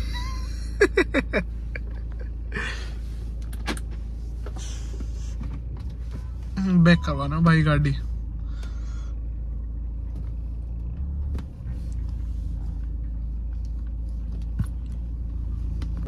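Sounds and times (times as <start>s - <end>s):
car engine and road rumble: 0.0s - 16.0s.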